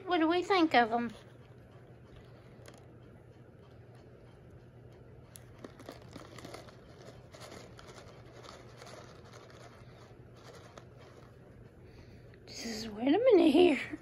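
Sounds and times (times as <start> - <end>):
plastic pouch crinkling: 5.4 - 11.4.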